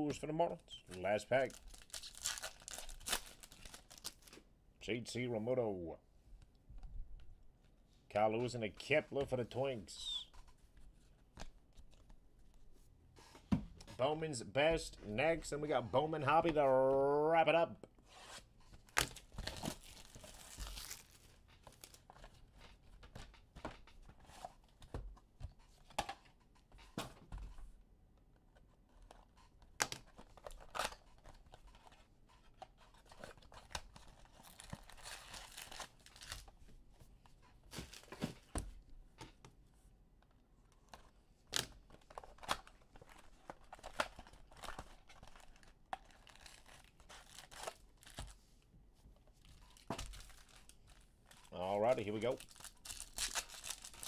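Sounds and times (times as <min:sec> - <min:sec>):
wrapping tearing and crinkling: 0:01.0 - 0:04.4, 0:18.8 - 0:22.1, 0:32.8 - 0:36.5, 0:40.9 - 0:48.4, 0:49.5 - 0:54.0.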